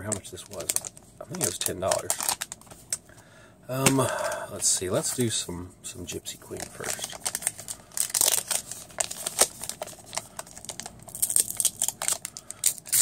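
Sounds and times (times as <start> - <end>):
wrapper crinkling and tearing: 0.0 - 2.8, 6.5 - 13.0.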